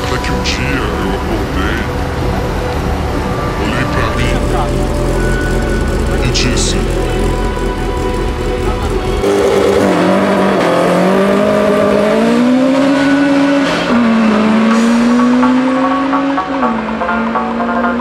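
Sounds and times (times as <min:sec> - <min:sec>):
car engine revving hard: 0:03.8 - 0:18.0.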